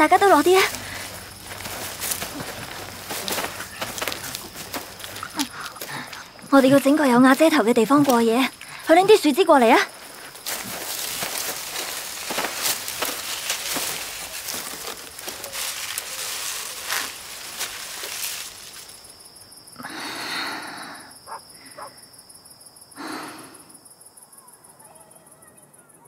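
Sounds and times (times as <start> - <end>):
twigs cracking: 0.0 - 9.0, 9.9 - 19.1
dry branches and leaves rustling: 0.0 - 19.4.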